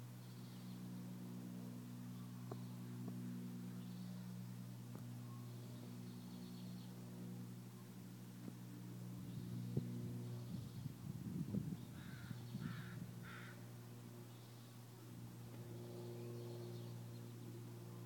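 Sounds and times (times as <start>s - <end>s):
steady low hum: 0.0s - 18.0s
bird calling: 11.9s - 13.6s.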